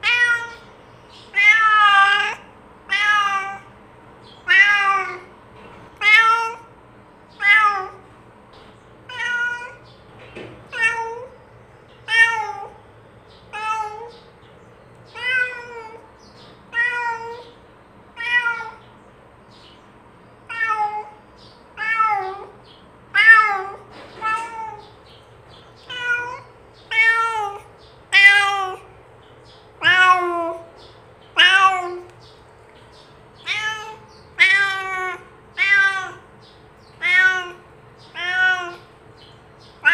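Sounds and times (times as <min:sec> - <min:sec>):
cat meowing: 0:00.0 - 0:00.7, 0:01.3 - 0:03.7, 0:04.4 - 0:05.3, 0:06.0 - 0:06.7, 0:07.3 - 0:08.0, 0:09.1 - 0:09.9, 0:10.7 - 0:11.4, 0:12.0 - 0:12.8, 0:13.5 - 0:14.3, 0:15.1 - 0:16.1, 0:16.7 - 0:17.6, 0:18.2 - 0:18.8, 0:20.4 - 0:25.0, 0:25.8 - 0:28.9, 0:29.8 - 0:30.7, 0:31.3 - 0:32.2, 0:33.4 - 0:36.3, 0:36.9 - 0:39.0, 0:39.7 - 0:39.9.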